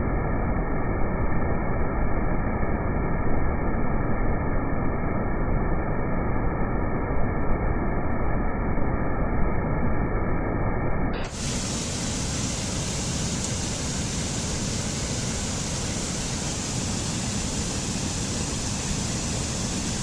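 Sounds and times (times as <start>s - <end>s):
waterfall rushing: 11.2s - 20.0s.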